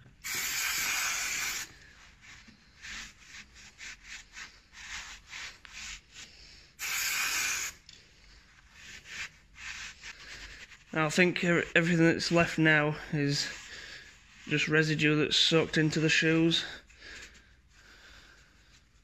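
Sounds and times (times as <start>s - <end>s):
aerosol spray hissing: 0.2s - 1.8s, 6.8s - 7.8s.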